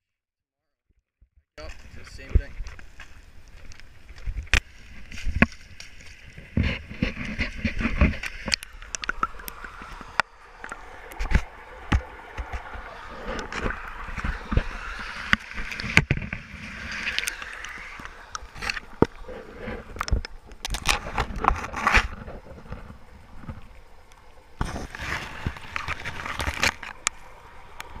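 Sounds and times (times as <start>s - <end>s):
fabric rubbing on microphone: 4.9s - 8.6s, 12.5s - 20.0s.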